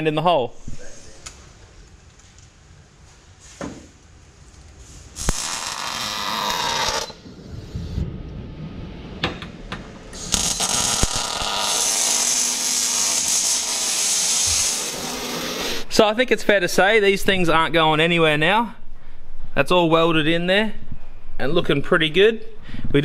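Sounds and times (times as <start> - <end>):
welding arc bursts: 5.2 - 7.2, 10.2 - 15.9.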